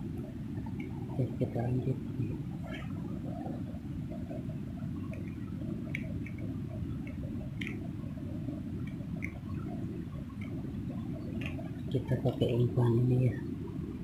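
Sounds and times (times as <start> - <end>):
water drips and splashes: 4.2 - 12.0.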